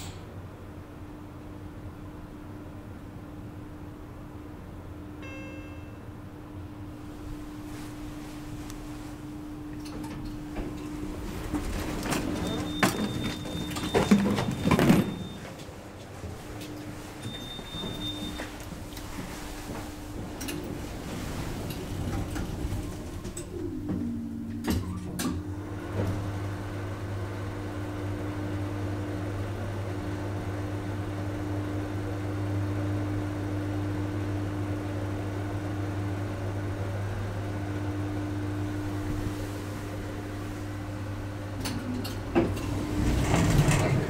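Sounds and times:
elevator hum: 0:00.0 - 0:44.0
elevator door clicks: 0:41.5 - 0:44.0.

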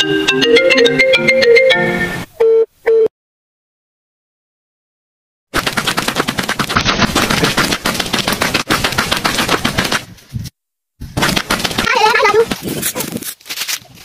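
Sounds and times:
rapid sharp bangs: 0:05.5 - 0:10.1, 0:11.1 - 0:12.6.

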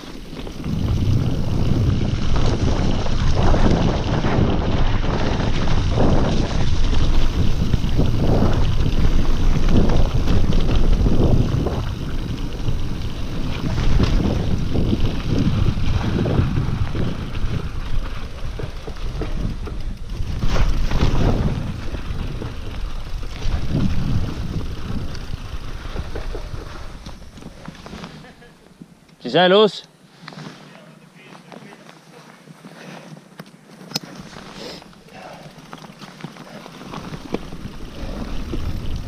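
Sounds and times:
wind buffeting microphone: 0:00.0 - 0:27.6, 0:36.8 - 0:39.0
bike rattling over trail: 0:00.0 - 0:29.4, 0:30.5 - 0:39.0.

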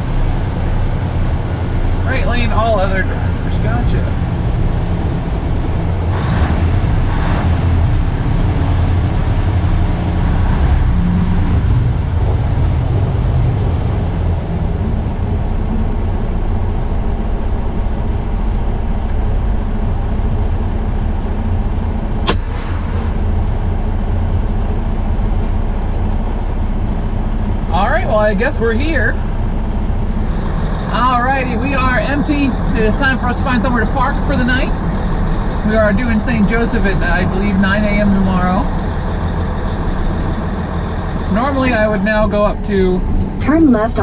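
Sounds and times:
diesel truck engine rumbling: 0:00.0 - 0:44.0
sharp click: 0:22.3 - 0:23.2.

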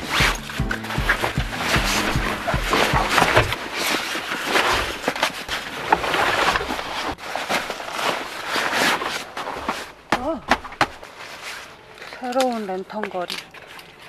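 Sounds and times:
crackle of handling: 0:00.0 - 0:10.1, 0:11.0 - 0:14.0
nylon fabric rustling: 0:00.0 - 0:10.4.

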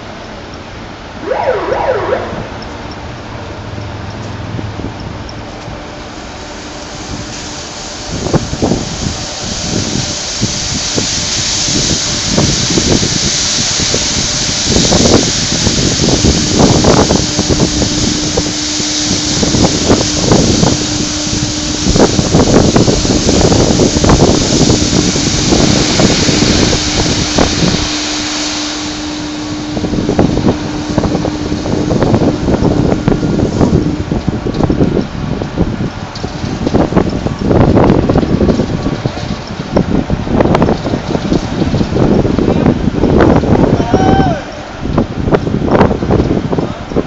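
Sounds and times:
low machine hum: 0:15.1 - 0:46.1.

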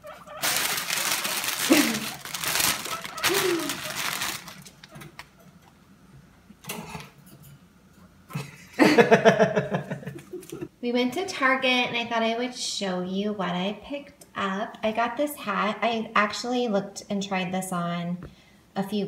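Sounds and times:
plastic bag crinkling: 0:00.0 - 0:05.3
person speaking: 0:01.1 - 0:04.5, 0:10.0 - 0:10.7.

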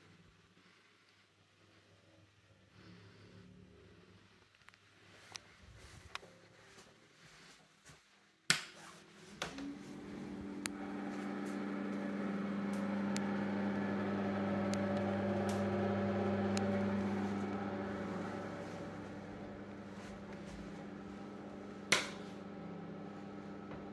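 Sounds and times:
extractor fan humming: 0:09.0 - 0:23.9.

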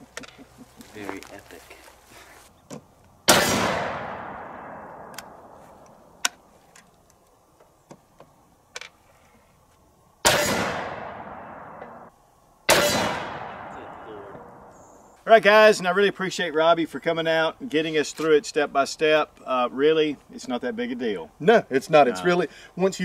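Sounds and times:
rifle shots: 0:03.3 - 0:05.6, 0:10.2 - 0:12.1, 0:12.7 - 0:14.7.

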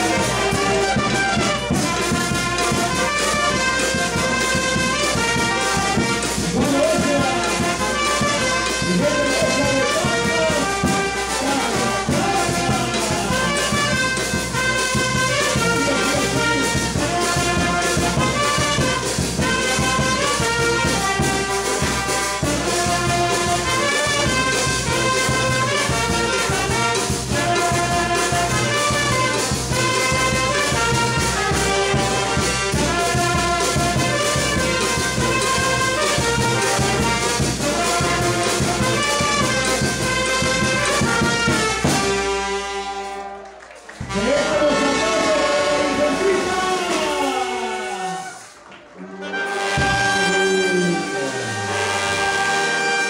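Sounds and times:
bass drum and cymbals beat: 0:00.0 - 0:42.9
brass band playing: 0:00.0 - 0:53.0.

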